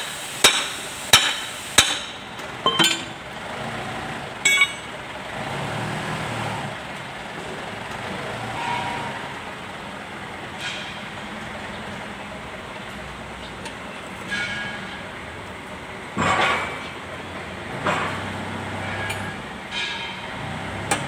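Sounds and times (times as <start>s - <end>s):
road traffic rumble: 0.0s - 21.0s
metal tool clinking down: 2.6s - 3.1s, 4.5s - 4.9s.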